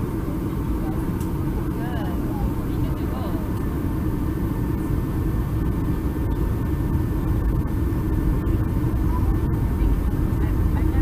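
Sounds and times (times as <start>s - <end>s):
airliner cabin engine rumble: 0.0s - 11.0s.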